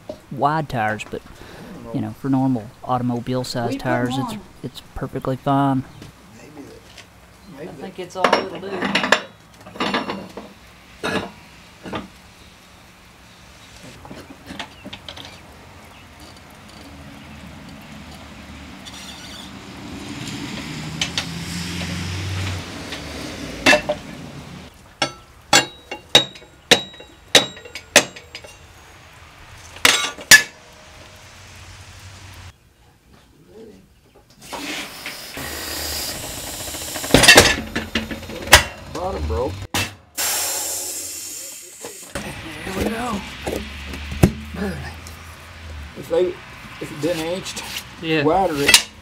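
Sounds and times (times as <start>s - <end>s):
metal clanks from tire tool: 8.3s - 12.1s, 23.6s - 24.0s, 25.0s - 28.7s, 29.8s - 30.6s, 37.0s - 39.1s, 48.5s - 49.0s
metal scraping: 34.4s - 40.0s.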